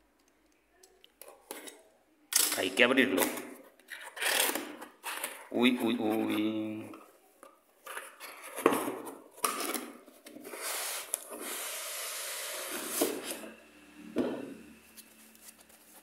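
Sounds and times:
foam scraping against cardboard: 10.5s - 13.5s.

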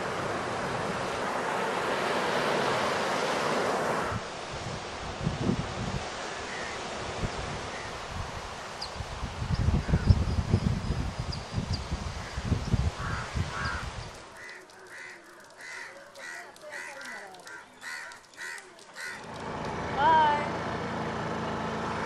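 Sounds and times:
outdoor traffic noise: 0.0s - 22.0s
wind rumble on microphone: 4.0s - 14.3s
crow cawing: 13.0s - 19.3s.

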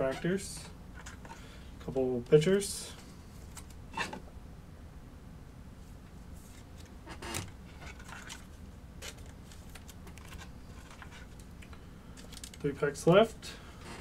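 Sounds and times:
low steady hum: 0.0s - 14.0s
trading cards clicking and rustling: 6.5s - 12.7s.

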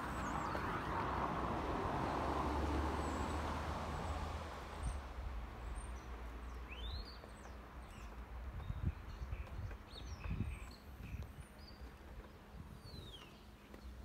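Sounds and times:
vehicle passing rumble: 0.0s - 6.6s.

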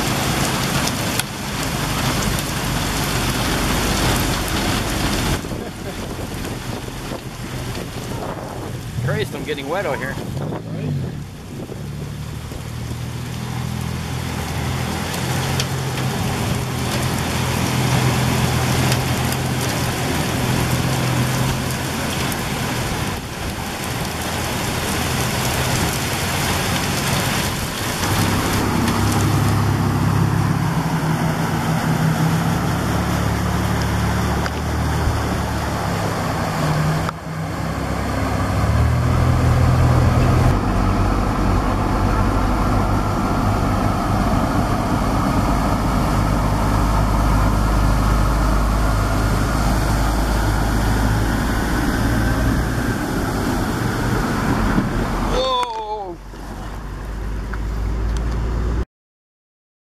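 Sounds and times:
car engines running: 0.0s - 58.8s
torrential rain pouring: 0.0s - 58.8s
tyres splashing through water: 0.0s - 58.8s.

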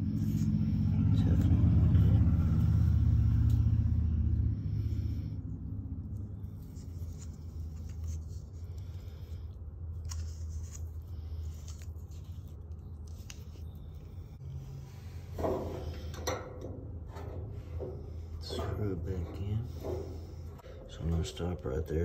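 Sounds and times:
low rumble: 0.0s - 9.5s
steady low hum: 0.0s - 22.0s
tape crinkling: 10.0s - 14.2s.

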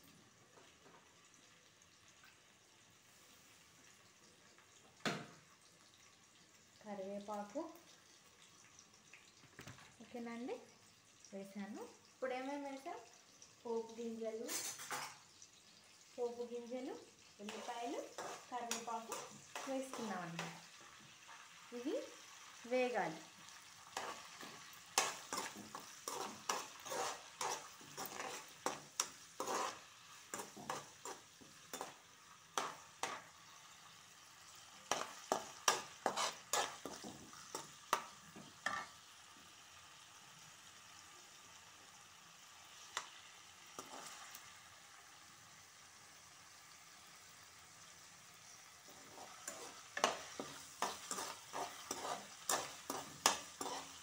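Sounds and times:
oil sizzling: 0.0s - 54.0s
metal spoon scraping a pan: 14.4s - 15.2s, 17.4s - 20.7s, 22.8s - 33.8s, 34.4s - 39.0s, 42.8s - 44.5s, 48.8s - 54.0s.

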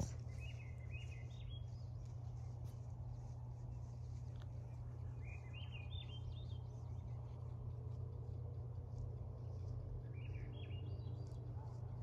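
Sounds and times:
songbird whistling: 0.0s - 1.8s, 5.1s - 6.7s, 10.0s - 11.0s
steady low rumble: 0.0s - 12.0s.

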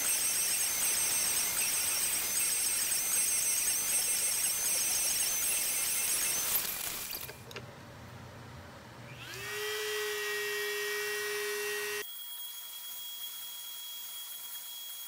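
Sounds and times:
router spindle whine: 9.1s - 15.0s.

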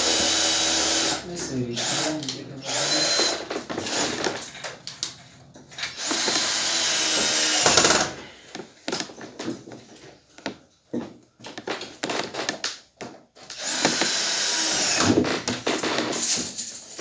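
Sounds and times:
cordless drill running: 0.0s - 4.4s, 5.8s - 8.2s, 13.5s - 15.4s.

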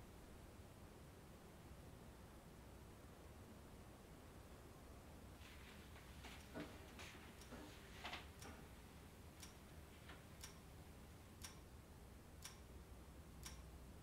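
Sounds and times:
soft hiss: 0.0s - 14.0s
clock ticking: 6.3s - 11.8s, 12.4s - 13.8s.

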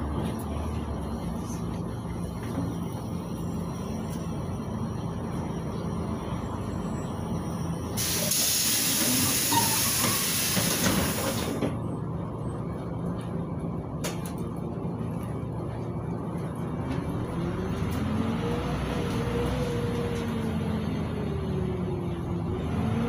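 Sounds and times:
bus engine low rumble: 0.0s - 23.0s
compressed air hiss: 8.0s - 11.6s.

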